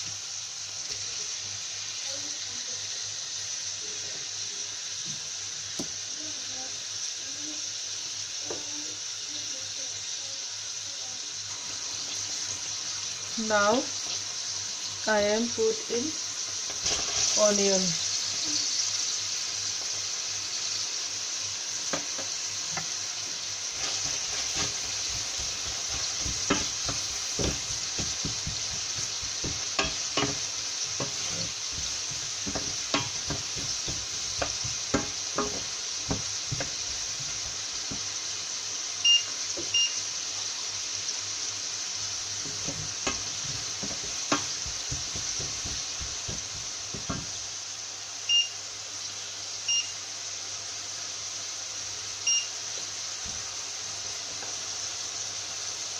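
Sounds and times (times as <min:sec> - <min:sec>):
onion sizzling in hot oil: 0:00.0 - 0:55.9
wooden spatula knocking on pan: 0:21.9 - 0:22.9, 0:23.8 - 0:38.2, 0:42.4 - 0:47.4
short electronic beeps: 0:39.0 - 0:40.0, 0:48.3 - 0:48.6, 0:49.7 - 0:49.9.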